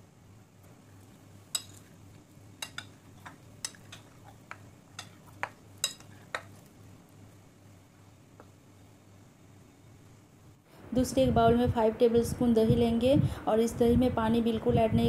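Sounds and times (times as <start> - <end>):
steel spoon clinking on ceramic plate: 1.5 - 1.8, 2.6 - 4.1, 5.0 - 5.2, 5.8 - 6.5.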